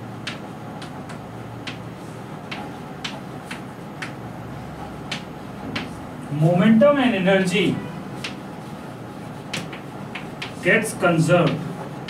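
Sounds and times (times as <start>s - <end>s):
chalk tapping on blackboard: 0.2s - 4.2s, 5.0s - 6.0s, 8.2s - 12.0s.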